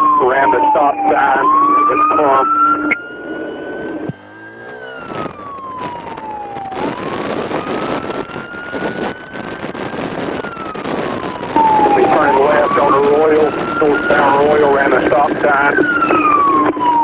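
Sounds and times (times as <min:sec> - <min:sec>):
police siren wailing: 0:00.0 - 0:17.0
road and wind noise: 0:00.0 - 0:17.0
engine revving: 0:01.0 - 0:08.2.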